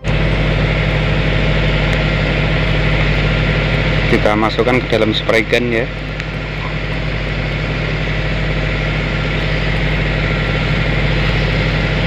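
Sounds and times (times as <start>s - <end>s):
machine motor humming: 0.0s - 12.0s.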